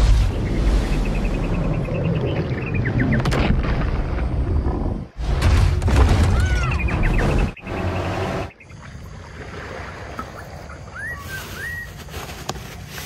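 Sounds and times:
booms: 0:03.2 - 0:07.6.

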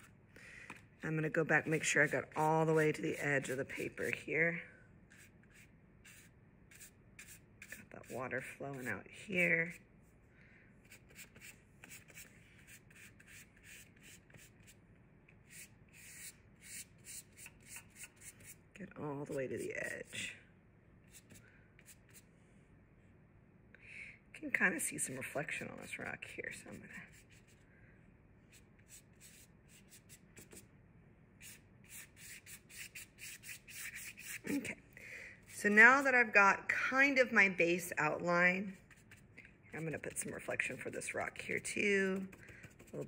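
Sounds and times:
paintbrush bristles rubbing on paper: 0:01.1 - 0:04.2, 0:05.1 - 0:10.2, 0:15.5 - 0:18.6, 0:28.5 - 0:30.6, 0:31.4 - 0:34.7, 0:38.7 - 0:41.4
paintbrush swishing on paper: 0:05.1 - 0:09.0, 0:31.4 - 0:34.7.

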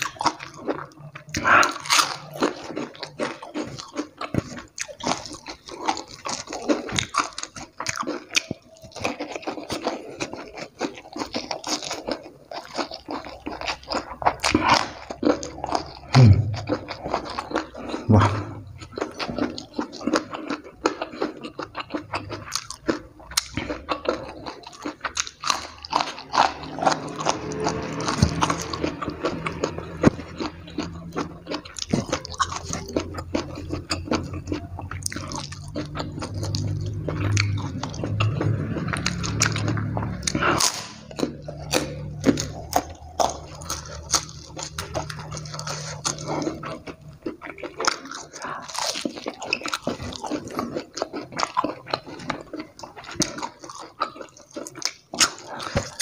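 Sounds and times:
crunchy chewing: 0:00.0 - 0:56.0
wet mouth sounds: 0:13.8 - 0:56.0.

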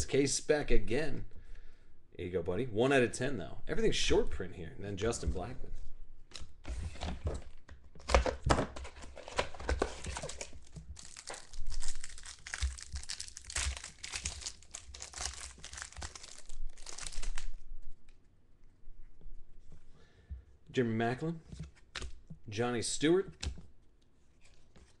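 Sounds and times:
plastic wrapper tearing and crinkling: 0:09.1 - 0:17.6.

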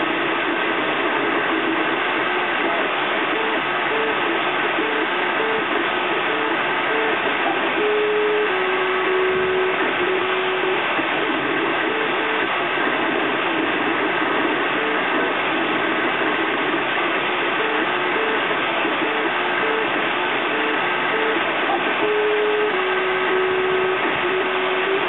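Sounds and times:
machine fan whirring hiss: 0:00.0 - 0:25.0
stepper motors whining: 0:02.3 - 0:13.2, 0:17.4 - 0:25.0.

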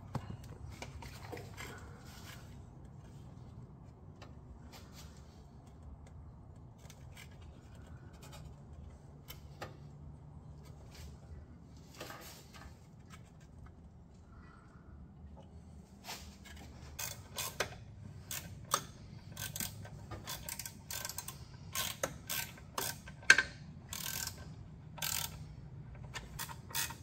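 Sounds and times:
low steady hum: 0:00.0 - 0:27.0
tools clicking against metal: 0:17.0 - 0:27.0.

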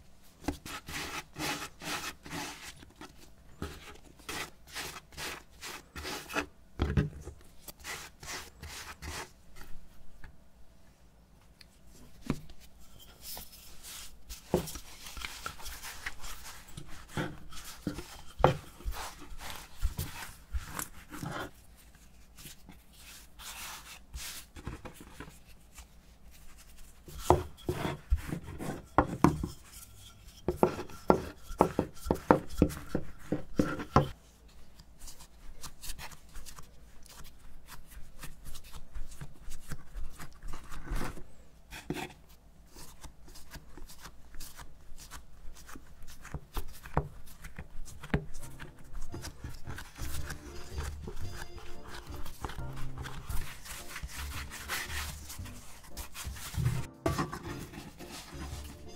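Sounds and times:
rolling pin on dough: 0:00.4 - 0:09.8, 0:12.0 - 0:34.2, 0:35.0 - 0:58.9.

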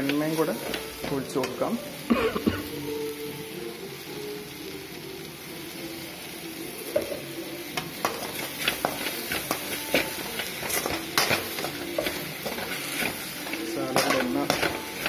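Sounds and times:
vegetables sizzling in a wok: 0:00.0 - 0:15.0
metal spatula clacking and scraping: 0:07.8 - 0:15.0.

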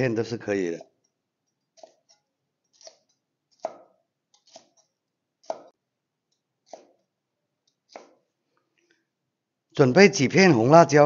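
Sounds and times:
cleaver slicing peppers on board: 0:01.7 - 0:05.8, 0:06.6 - 0:07.0, 0:07.8 - 0:08.2.

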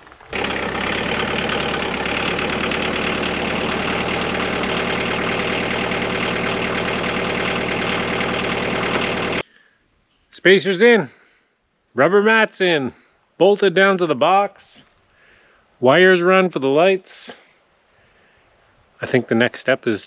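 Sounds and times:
tractor engine idling: 0:00.0 - 0:09.4.

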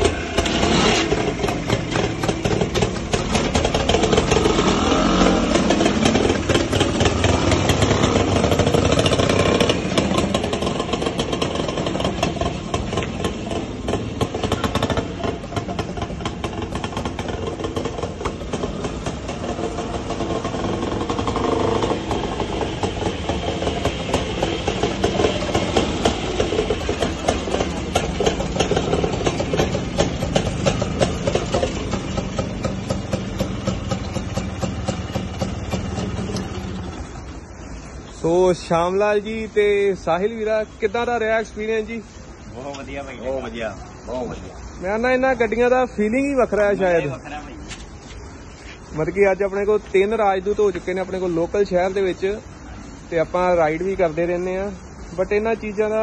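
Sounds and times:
two-stroke motorcycles revving: 0:00.0 - 0:37.8.

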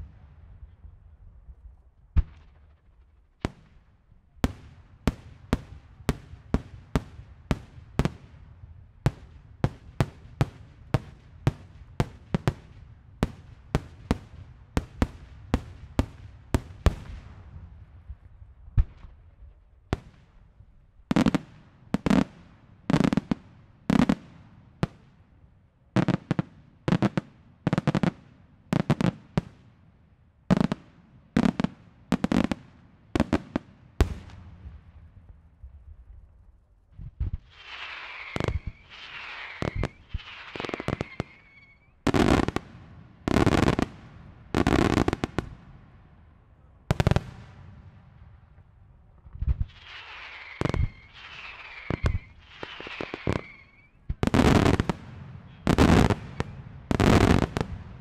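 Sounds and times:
fireworks bursting: 0:37.0 - 0:45.7, 0:49.3 - 0:58.0.

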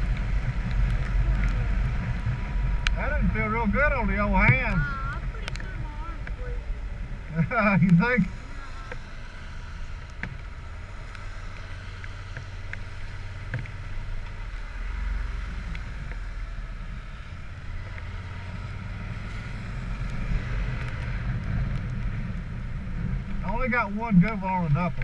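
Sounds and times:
motorcycle engine rumble: 0:00.0 - 0:25.0
light ticks: 0:00.1 - 0:03.0, 0:04.4 - 0:06.5, 0:10.0 - 0:14.6, 0:15.6 - 0:16.2, 0:20.0 - 0:22.4.

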